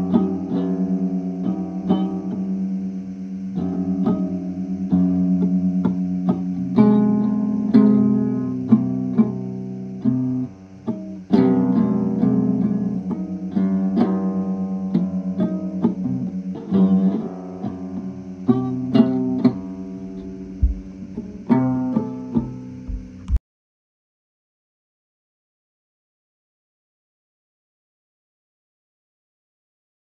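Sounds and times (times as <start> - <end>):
plucked guitar music: 0.0 - 23.4.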